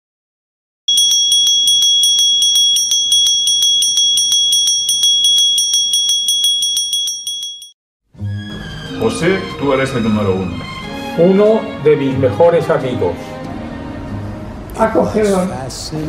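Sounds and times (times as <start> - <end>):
metal hand bell ringing rapidly: 0.9 - 7.7.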